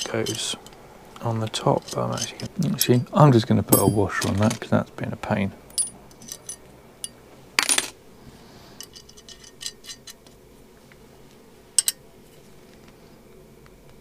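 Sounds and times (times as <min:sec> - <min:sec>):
steel hardware clinking: 0:00.0 - 0:00.8, 0:01.4 - 0:04.7, 0:05.7 - 0:08.0, 0:08.8 - 0:10.2, 0:11.8 - 0:12.0.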